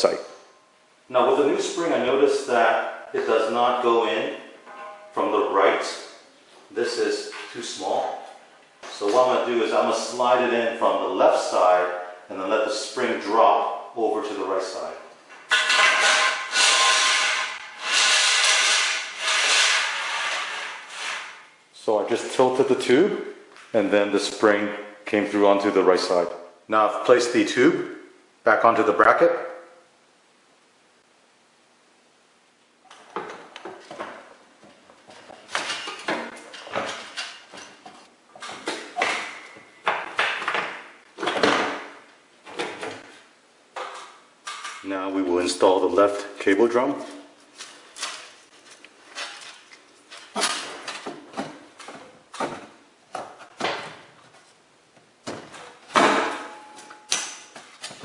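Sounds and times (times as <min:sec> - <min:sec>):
spring scraping inside metal tube: 0:15.5 - 0:21.4.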